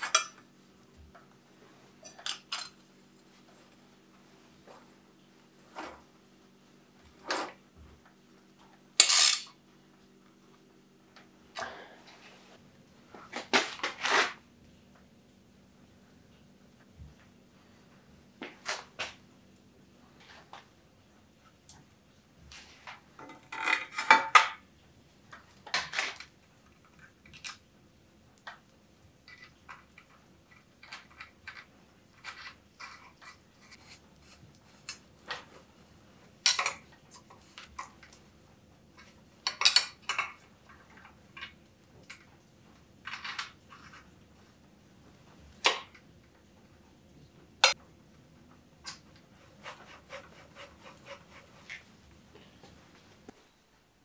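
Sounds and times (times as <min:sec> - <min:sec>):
metal parts clinking and scraping: 0:00.0 - 0:00.4, 0:02.0 - 0:02.8, 0:09.0 - 0:09.6.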